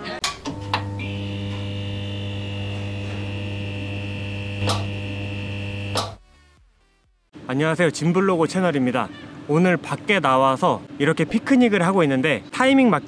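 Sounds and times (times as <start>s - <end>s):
neon sign electrical hum: 0.2s - 6.2s
electrical crackle: 0.5s - 6.2s.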